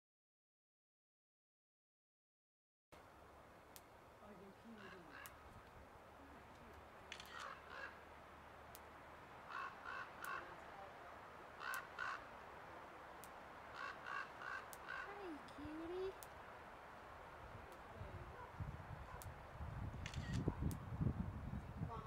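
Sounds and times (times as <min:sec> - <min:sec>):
faint clicks: 0:03.7 - 0:03.9, 0:06.5 - 0:07.9, 0:08.7 - 0:08.9, 0:11.6 - 0:12.1, 0:13.1 - 0:16.4, 0:19.1 - 0:19.4
crows cawing: 0:04.6 - 0:05.6, 0:07.1 - 0:16.4.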